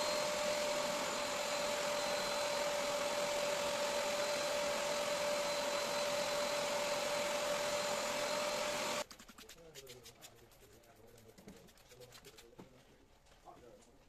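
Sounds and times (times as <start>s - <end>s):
upholstery cleaner motor humming: 0.0s - 9.0s.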